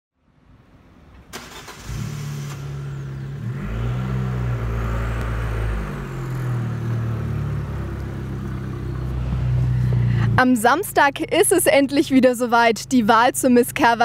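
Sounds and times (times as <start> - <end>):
car engine running at low revs: 1.8 - 11.8.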